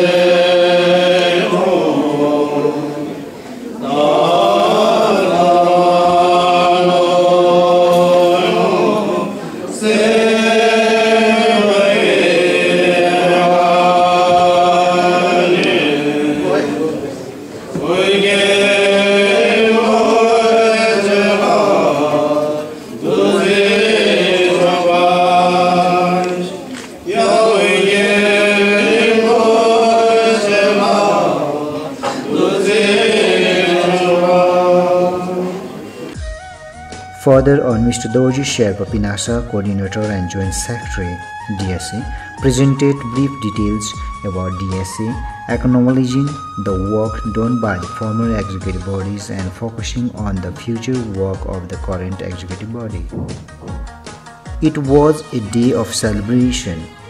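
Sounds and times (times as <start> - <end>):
voices chanting in unison: 0.0 - 36.2.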